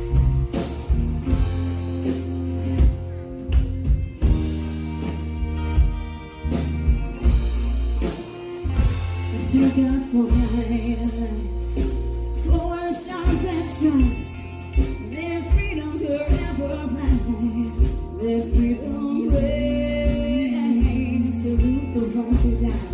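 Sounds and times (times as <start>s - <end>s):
country band playing: 0.0s - 22.9s
person singing: 9.3s - 22.9s.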